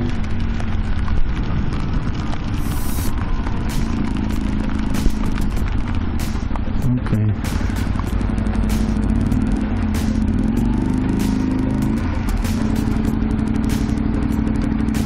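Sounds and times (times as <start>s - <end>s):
motorcycle engine idling: 0.0s - 15.0s
sharp ticks: 7.4s - 15.0s.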